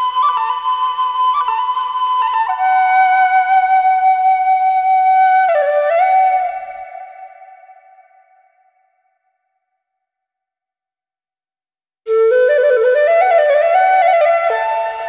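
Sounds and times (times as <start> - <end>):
solo flute playing slow notes: 0.0 - 8.7, 12.1 - 15.0.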